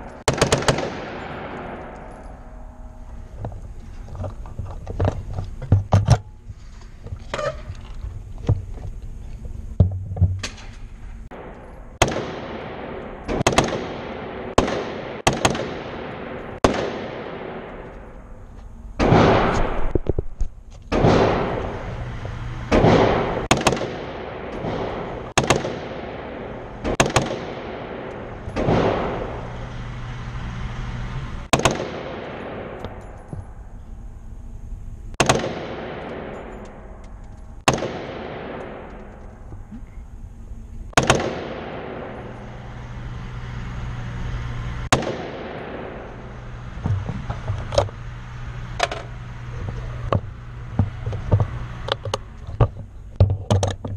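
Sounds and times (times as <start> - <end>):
rifle shots echoing indoors: 0.0 - 3.0, 10.5 - 18.4, 19.0 - 20.0, 20.9 - 39.5, 40.9 - 43.6, 44.8 - 46.7.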